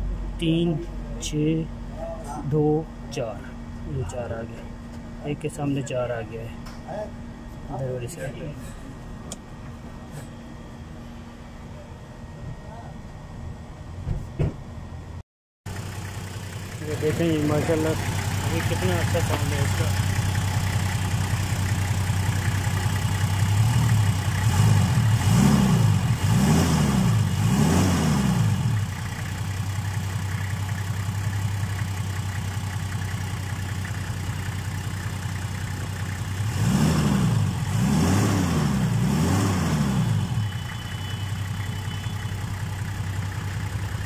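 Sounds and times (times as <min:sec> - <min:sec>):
diesel engine idling: 0:00.0 - 0:11.6, 0:15.7 - 0:26.4, 0:28.2 - 0:44.0
engine revving: 0:16.7 - 0:29.4, 0:36.2 - 0:40.8.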